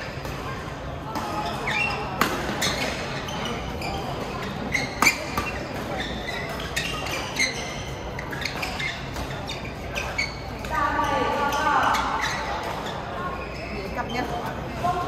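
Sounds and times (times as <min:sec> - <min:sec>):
racket hitting shuttlecock: 0:00.0 - 0:03.0, 0:04.2 - 0:07.6
shoes squeaking on court floor: 0:00.0 - 0:15.0.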